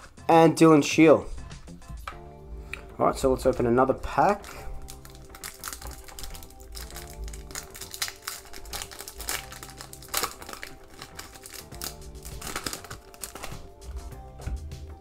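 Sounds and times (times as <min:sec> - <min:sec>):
background music: 0:00.0 - 0:15.0
foil wrapper crinkling and tearing: 0:04.3 - 0:13.7.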